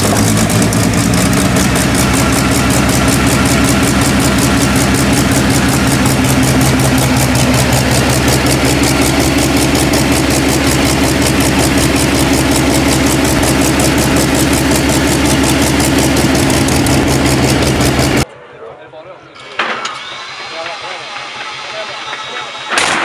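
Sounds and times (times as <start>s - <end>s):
aero engine idling: 0.0s - 18.3s.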